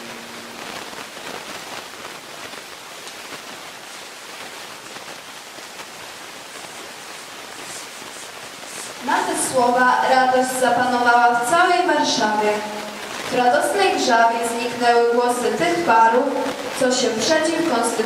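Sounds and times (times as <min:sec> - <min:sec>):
people rustling and shuffling: 0:00.0 - 0:09.8
hallway room tone hiss: 0:00.0 - 0:18.0.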